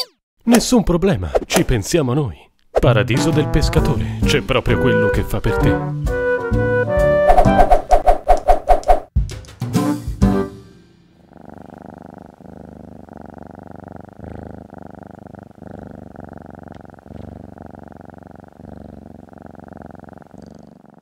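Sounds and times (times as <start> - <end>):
cat purring: 11.2 - 21.0.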